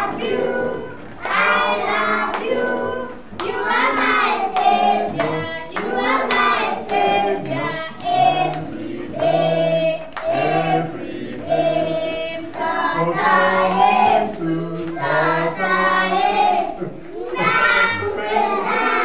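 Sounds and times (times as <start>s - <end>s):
children singing together: 0.0s - 19.0s
hand-clapping: 1.2s - 10.5s.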